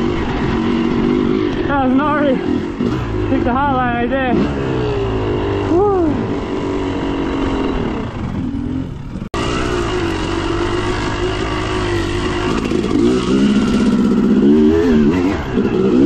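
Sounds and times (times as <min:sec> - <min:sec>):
dirt bike engine revving: 0:00.0 - 0:16.0.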